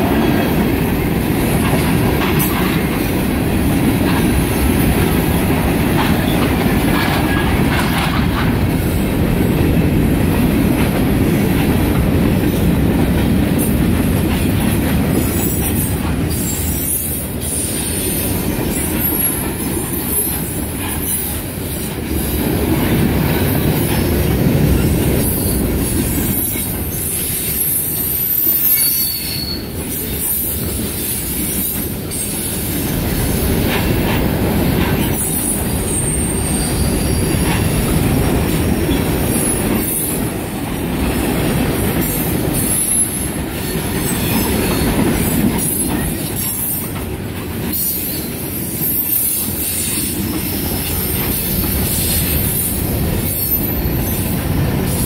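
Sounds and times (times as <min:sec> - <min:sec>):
wheels clacking over rail joints: 0:00.0 - 0:27.4, 0:29.7 - 0:55.0
train wheels rumbling on rail: 0:00.0 - 0:55.0
wheel squeal: 0:26.4 - 0:30.4.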